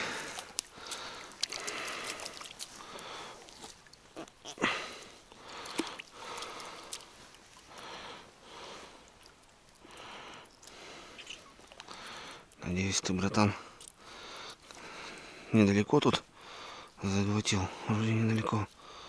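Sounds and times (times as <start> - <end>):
man breathing: 0.0 - 3.4, 4.6 - 9.1, 11.9 - 12.5, 13.6 - 15.5, 16.4 - 17.0, 18.8 - 19.0.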